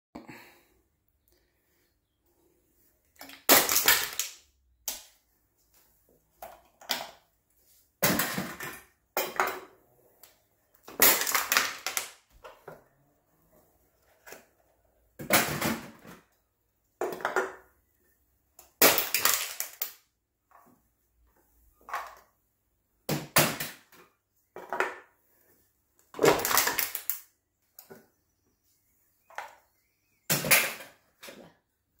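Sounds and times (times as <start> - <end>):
cans crunching in crusher: 10.9 - 12.1.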